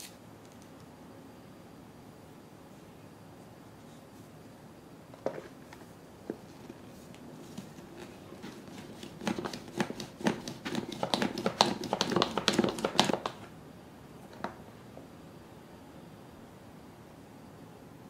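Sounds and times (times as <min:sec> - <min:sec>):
plastic lid clicking and knocking: 0:09.3 - 0:13.4.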